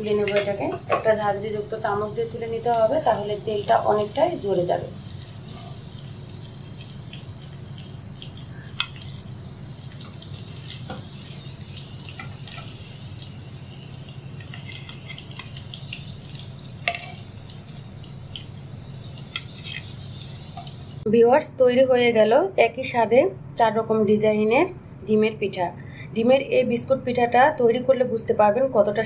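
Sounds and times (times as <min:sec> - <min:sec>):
oil sizzling with crackles: 0:00.0 - 0:21.1.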